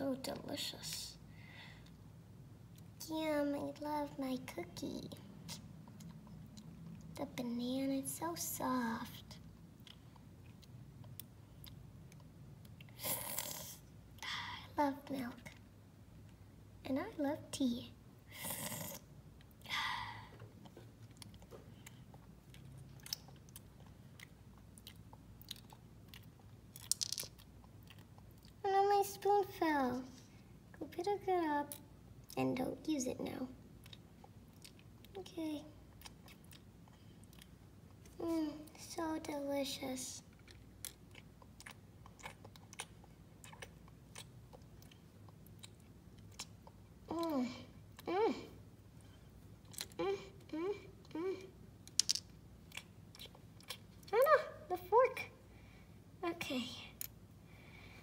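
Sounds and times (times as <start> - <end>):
low room hum: 0.0 - 58.0
plastic toy pieces clicking: 26.8 - 27.3, 52.0 - 52.2.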